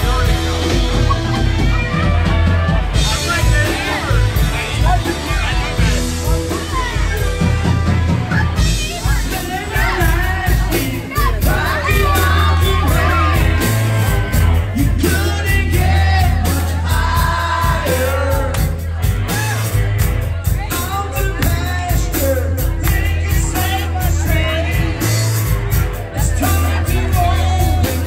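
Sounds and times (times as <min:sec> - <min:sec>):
heavy bass: 0:00.0 - 0:28.0
live rock band playing: 0:00.0 - 0:28.0
steady drum beat: 0:00.0 - 0:28.0
lead vocal singing: 0:08.3 - 0:19.7, 0:20.7 - 0:25.5, 0:26.1 - 0:28.0.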